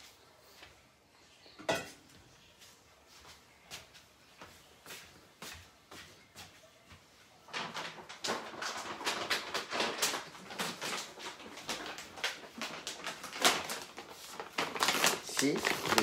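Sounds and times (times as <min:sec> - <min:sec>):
plastic bag rustling: 0:07.3 - 0:16.0.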